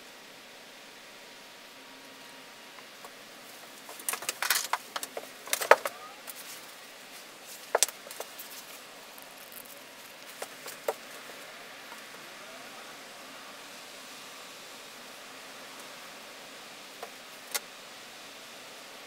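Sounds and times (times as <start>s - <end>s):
background hiss: 0.0s - 19.0s
small hard objects clicking: 3.9s - 6.4s, 7.6s - 11.0s.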